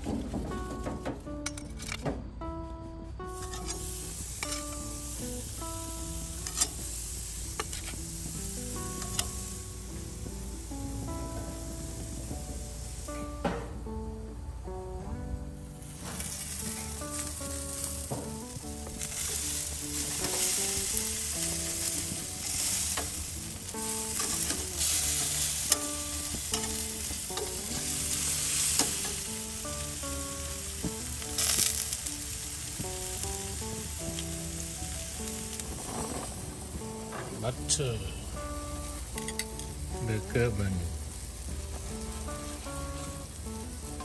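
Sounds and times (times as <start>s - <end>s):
burgers sizzling on grill: 0.0s - 44.0s.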